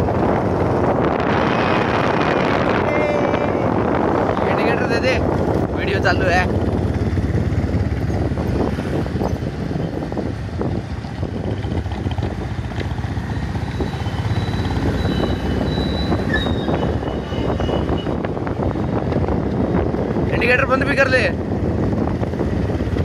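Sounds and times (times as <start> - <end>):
motorcycle engines running: 0.0 - 23.0
wind rumbling on microphone: 0.0 - 23.0.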